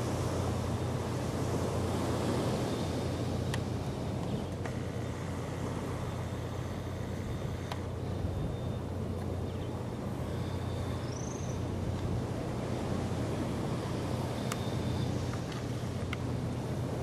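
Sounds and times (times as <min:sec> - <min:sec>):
low rumbling background noise: 0:00.0 - 0:17.0
faint clicks: 0:07.6 - 0:07.9.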